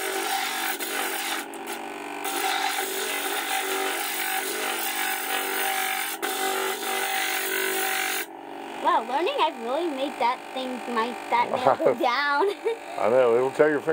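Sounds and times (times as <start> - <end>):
stone grinding on spinning disc: 0.0 - 8.3
machine motor hum: 0.0 - 13.9.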